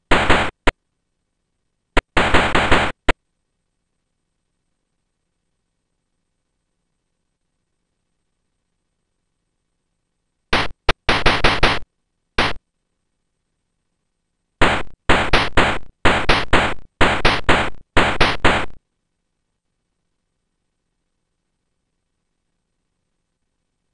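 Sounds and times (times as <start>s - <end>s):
electronic hi-hat hits: 10.6s - 11.8s, 12.4s - 12.6s.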